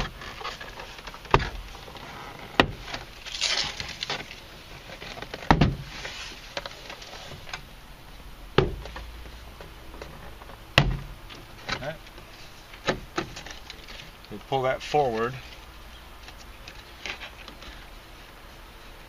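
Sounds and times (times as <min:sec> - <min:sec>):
plastic rubbing and rattling: 0:00.0 - 0:07.6.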